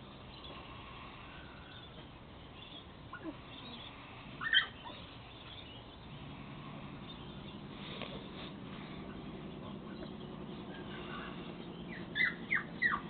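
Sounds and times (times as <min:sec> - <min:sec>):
puppies yelping: 0:03.0 - 0:06.0, 0:06.6 - 0:13.0.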